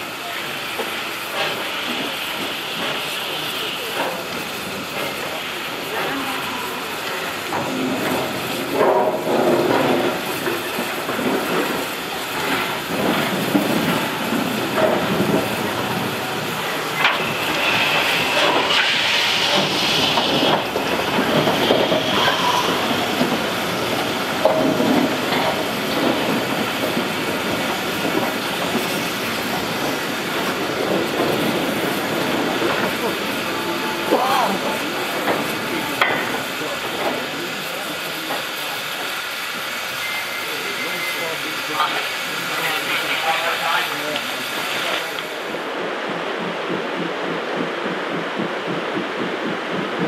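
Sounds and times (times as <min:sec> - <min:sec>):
steam hiss: 0:00.0 - 0:50.0
wheels clattering over rail joints: 0:07.0 - 0:33.3.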